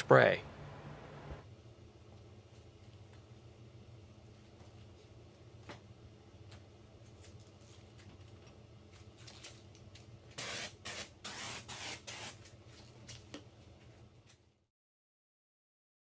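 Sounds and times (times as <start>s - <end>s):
foam sprayer hissing: 10.4s - 12.3s.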